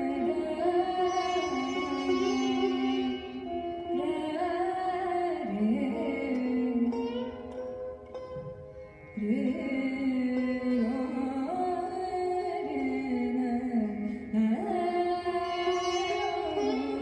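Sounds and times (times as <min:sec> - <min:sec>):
orchestral strings: 0:00.0 - 0:04.8.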